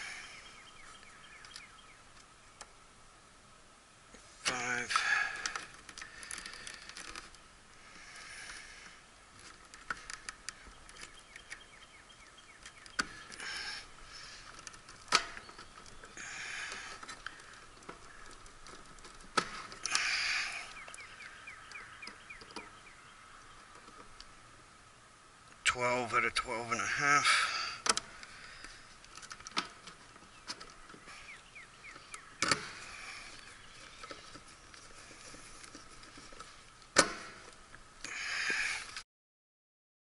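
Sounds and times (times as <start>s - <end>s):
light clicks and rattles of wiring: 9.3s - 11.7s, 12.6s - 21.1s, 27.8s - 31.2s.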